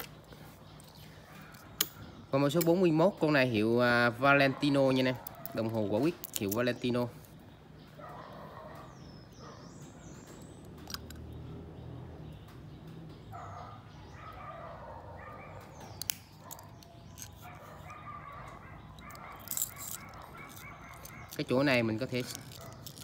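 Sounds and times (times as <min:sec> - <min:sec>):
sharp clicks: 0:15.7 - 0:17.5.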